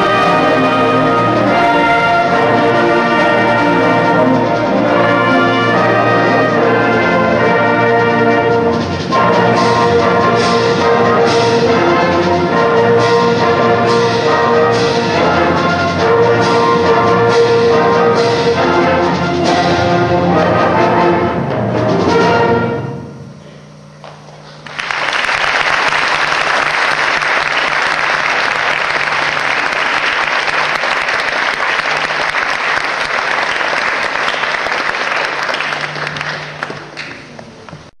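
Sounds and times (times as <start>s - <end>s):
concert band playing: 0.0s - 23.3s, 25.5s - 37.9s
audience applause: 24.5s - 37.4s.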